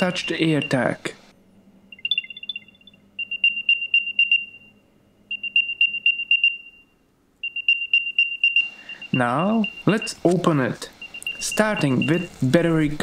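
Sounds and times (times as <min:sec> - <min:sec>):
quick high-pitched chirps: 0:01.9 - 0:04.4.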